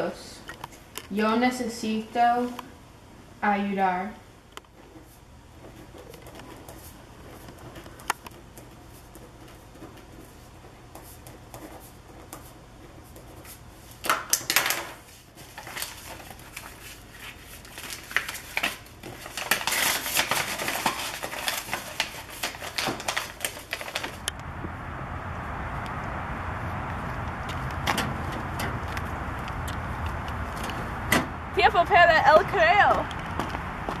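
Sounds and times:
paper rustling and crinkling: 0:04.7 - 0:24.3.

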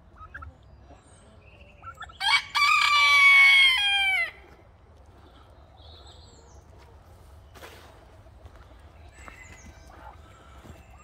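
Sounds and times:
rooster crowing: 0:02.2 - 0:04.4.

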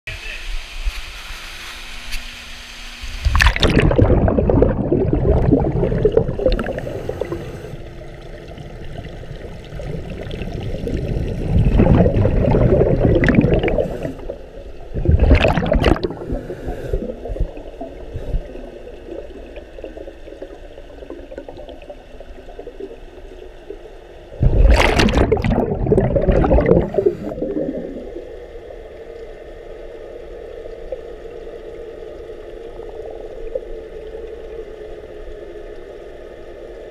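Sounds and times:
steady hum: 0:00.1 - 0:36.9
underwater bubbles gurgling: 0:03.1 - 0:36.9
diver breathing: 0:06.6 - 0:08.0, 0:13.7 - 0:14.6, 0:16.1 - 0:18.9.

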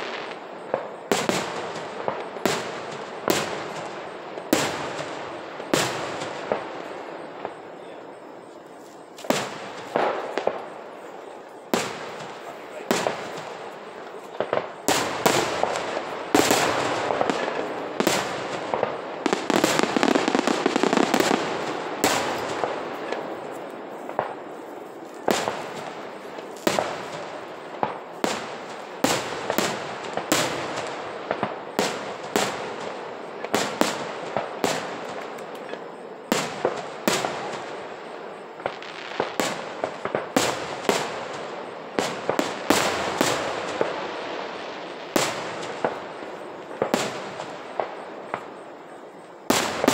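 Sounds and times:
fireworks bursting: 0:00.0 - 0:49.9
fireworks crackling: 0:00.0 - 0:49.9.

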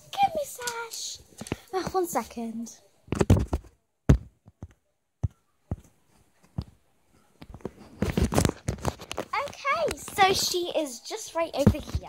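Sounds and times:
phone handling bumps and rubbing: 0:03.1 - 0:06.8, 0:07.4 - 0:10.4.

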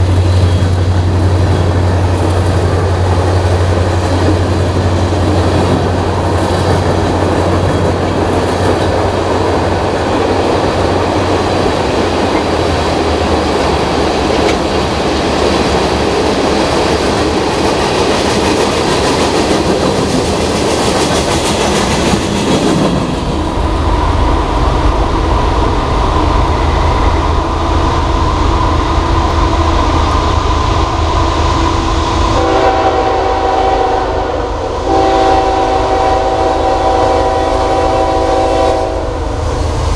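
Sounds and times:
train cars clattering on rails: 0:00.0 - 0:23.5
locomotive horn chord: 0:32.4 - 0:39.2.

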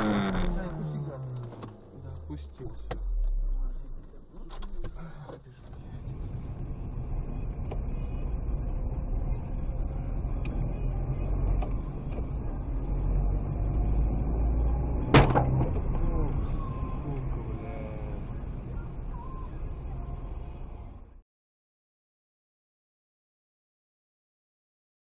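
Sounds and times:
car engine and road rumble: 0:00.0 - 0:21.2.

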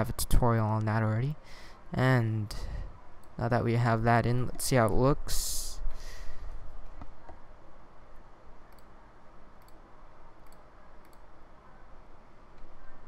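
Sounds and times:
computer mouse clicks: 0:08.7 - 0:09.0, 0:09.6 - 0:11.3.

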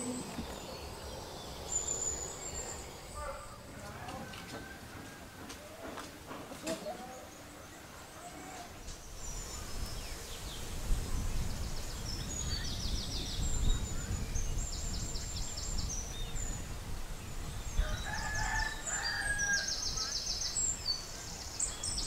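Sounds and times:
small birds chirping and trilling: 0:00.0 - 0:04.8, 0:06.6 - 0:22.0
wind rumbling on microphone: 0:08.7 - 0:22.0.

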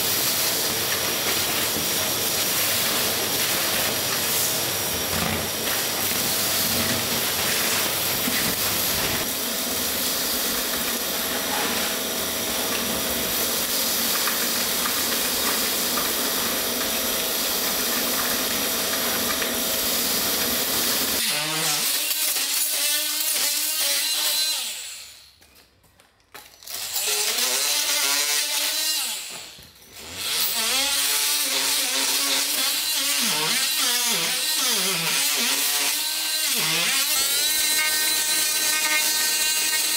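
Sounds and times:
shop vacuum running: 0:00.0 - 0:22.3, 0:29.2 - 0:39.9
multi-tool scraping concrete: 0:26.7 - 0:39.9.

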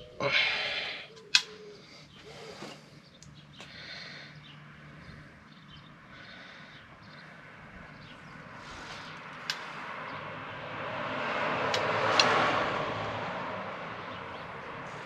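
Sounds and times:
vehicle passing: 0:00.0 - 0:15.0.

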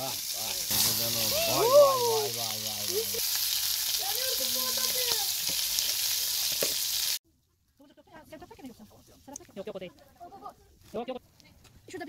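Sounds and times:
peppers sizzling in a pan: 0:00.0 - 0:07.2.

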